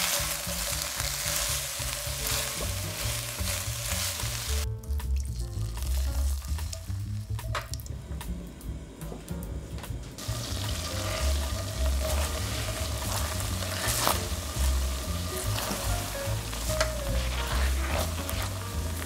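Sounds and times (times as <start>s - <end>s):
spatula scraping a pan: 0.0s - 4.3s, 10.7s - 19.0s
wine sizzling in a pan: 0.0s - 8.8s, 10.2s - 19.0s.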